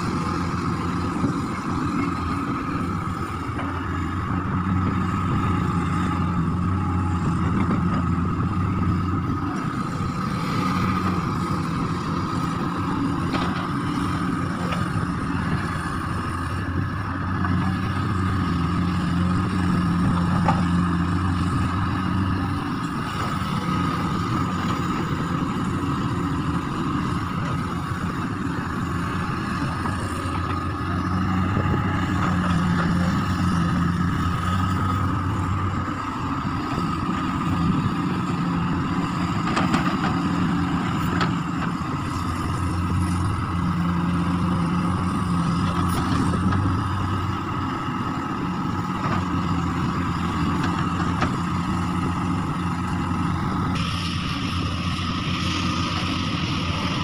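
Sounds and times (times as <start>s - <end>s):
excavator diesel engine: 0.0s - 57.0s
high whine: 53.6s - 57.0s.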